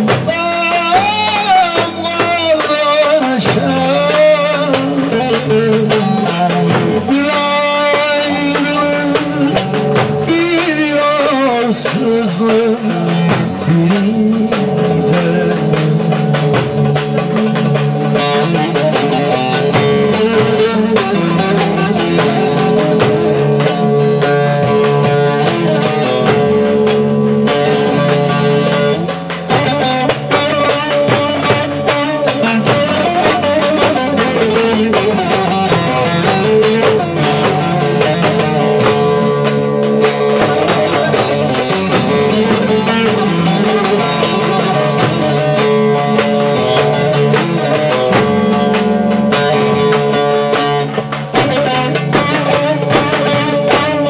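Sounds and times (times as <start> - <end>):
man singing: 0.0 - 17.6, 18.2 - 23.2, 29.5 - 38.9.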